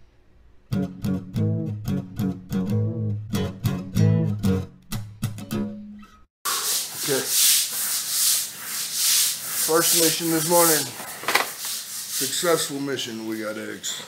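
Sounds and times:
harsh rushing rubbing noise: 6.5s - 13.8s.

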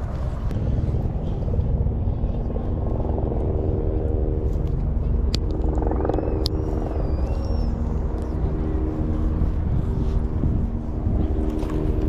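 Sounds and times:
low engine-like drone: 0.0s - 12.0s
faint wavering whistle: 6.0s - 8.1s.

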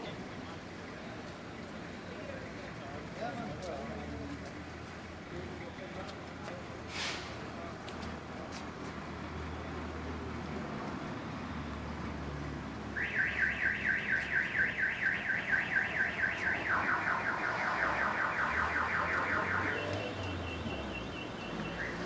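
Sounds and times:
car alarm cycling tones: 13.0s - 22.0s.

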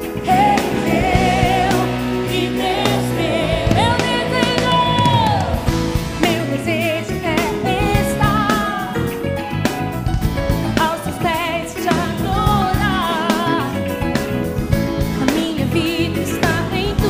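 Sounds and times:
woman singing with vibrato: 0.0s - 9.1s
band with drums: 0.0s - 15.7s.

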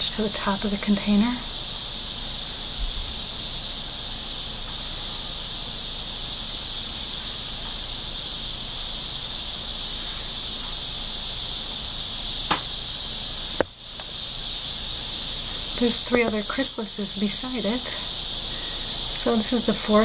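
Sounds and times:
insects droning: 0.0s - 20.0s
sharp click: 12.5s - 12.7s.

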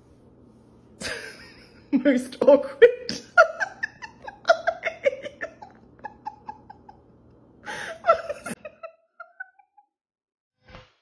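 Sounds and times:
person laughing: 1.0s - 2.0s, 2.8s - 9.9s.

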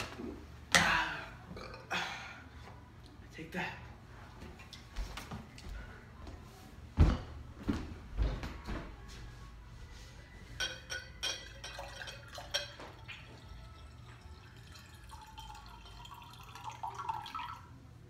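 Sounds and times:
glass clinks: 10.6s - 13.2s
water pouring into glass: 11.6s - 17.7s.

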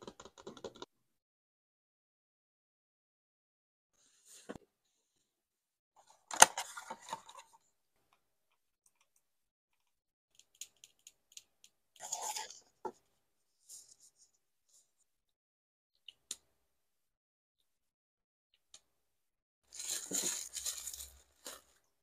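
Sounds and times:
packaging crinkle: 19.7s - 21.9s
cardboard rustling: 19.8s - 21.8s.

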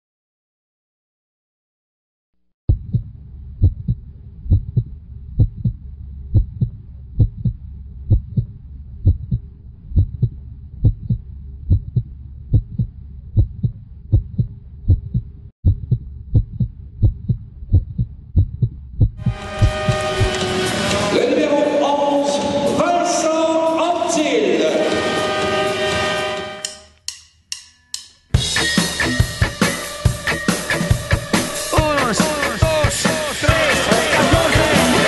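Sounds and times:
heartbeat thumps: 2.7s - 20.4s
low hum: 2.7s - 21.2s.

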